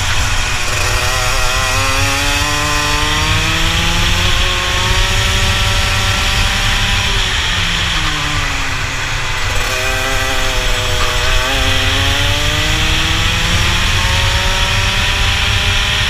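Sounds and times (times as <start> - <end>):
kart engine at full throttle: 0.0 - 16.0.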